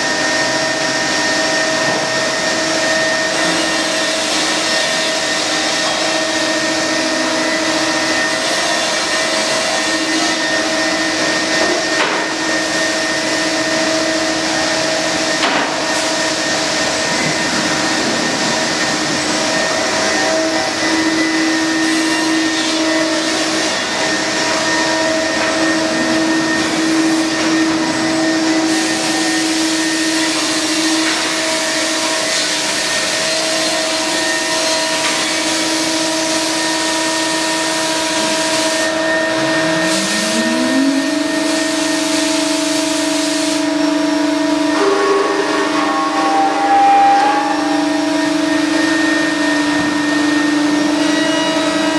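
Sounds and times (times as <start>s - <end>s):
dust extraction running: 0.0s - 51.9s
router spindle whine: 0.0s - 51.9s
motor spinning up: 37.2s - 43.0s.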